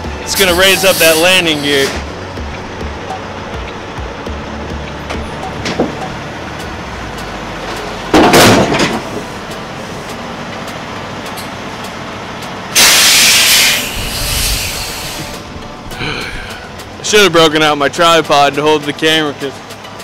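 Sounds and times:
diesel engine running: 0.0 - 20.0
air brake hisses: 0.4 - 2.0, 12.8 - 15.5.

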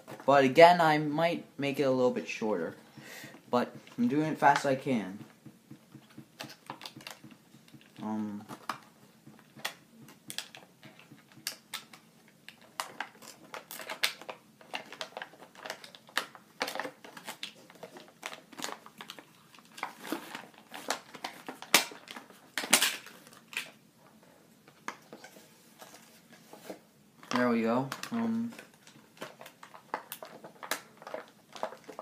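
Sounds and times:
plastic packaging crinkling: 6.4 - 23.8, 27.9 - 32.0.

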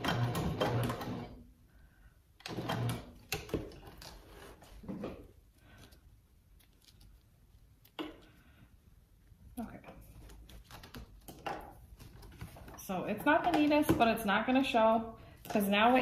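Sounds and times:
sewing machine stitching: 0.0 - 1.4, 2.4 - 3.5.

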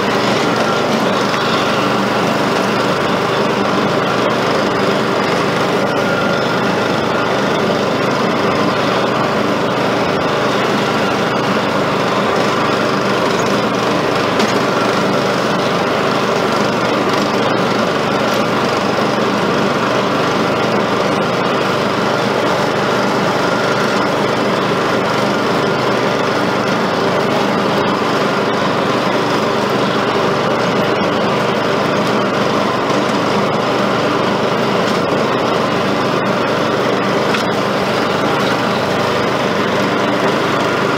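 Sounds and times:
riding mower engine running: 0.0 - 40.9.

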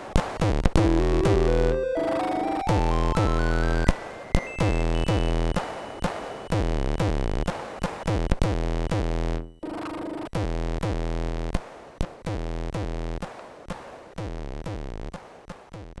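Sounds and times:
chiptune music: 0.8 - 7.2.

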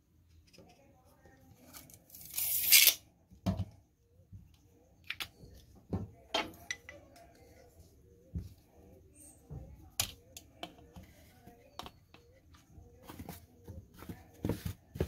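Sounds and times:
tape measure retracting zip: 2.2 - 3.0.

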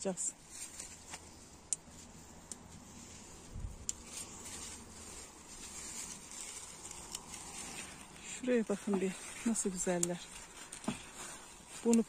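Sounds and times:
leaves rustling against microphone: 0.0 - 12.0
light ticks: 1.1 - 2.8, 3.8 - 4.2, 9.8 - 10.9.

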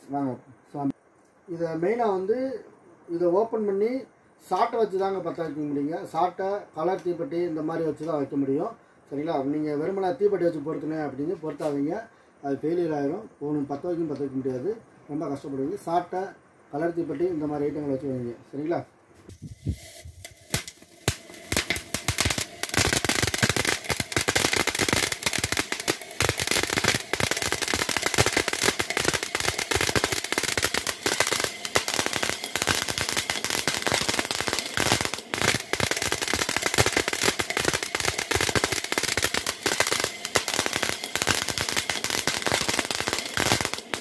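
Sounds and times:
rapid crackling pops: 19.2 - 44.0
fountain firework hissing: 19.3 - 44.0.

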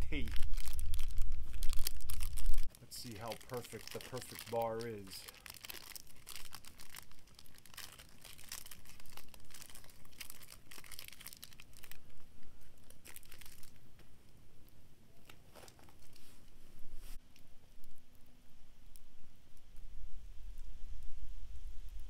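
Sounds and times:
wrapper tearing and crinkling: 0.0 - 13.8, 15.2 - 16.4.

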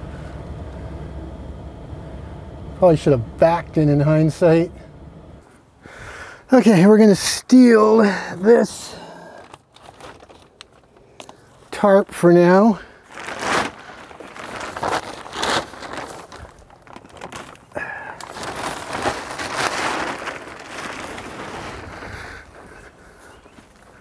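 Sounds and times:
plastic tarp rustling and crinkling: 7.6 - 24.0.

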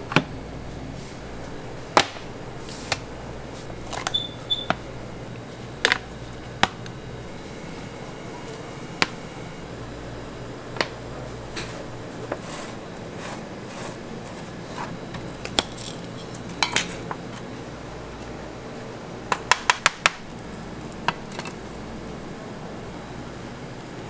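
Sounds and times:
steady background hum: 0.0 - 24.0.

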